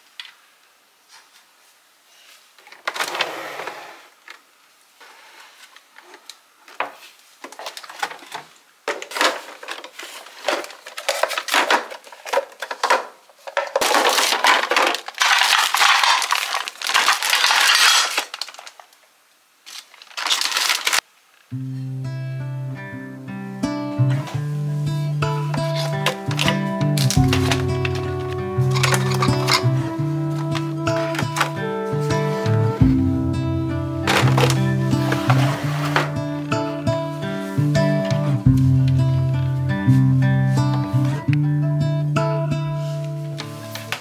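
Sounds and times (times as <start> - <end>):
plastic appliances clattering: 2.6 - 3.4, 6.0 - 18.9, 19.7 - 21.0, 25.4 - 31.8, 34.1 - 36.3
plastic bag rustling: 5.0 - 19.0, 19.6 - 21.1, 24.2 - 33.2, 34.0 - 40.8, 42.8 - 44.0.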